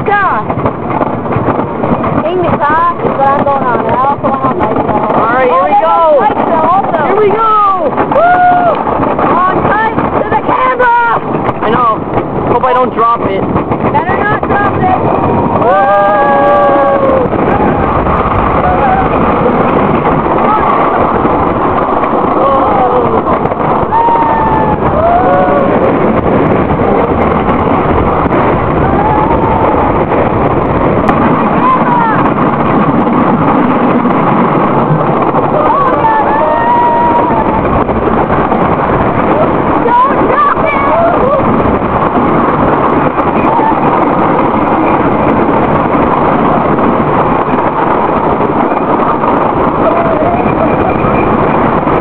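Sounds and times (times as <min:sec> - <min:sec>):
roller coaster rumble and rattle: 0:00.0 - 0:52.0
wind buffeting microphone: 0:00.0 - 0:52.0
riders crying out: 0:15.6 - 0:17.7, 0:22.2 - 0:26.2, 0:35.4 - 0:38.0.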